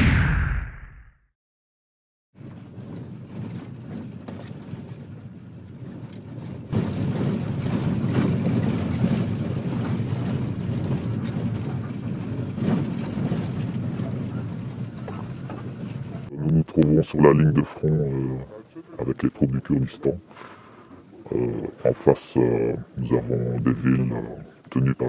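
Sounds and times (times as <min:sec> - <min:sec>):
vehicle engine rumble in cabin: 0:02.8 - 0:16.3.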